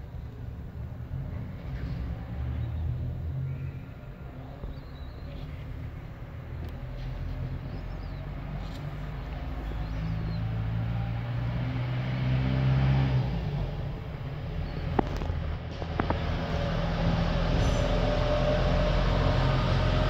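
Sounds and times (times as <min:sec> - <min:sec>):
vehicle engine humming: 0:00.0 - 0:20.0.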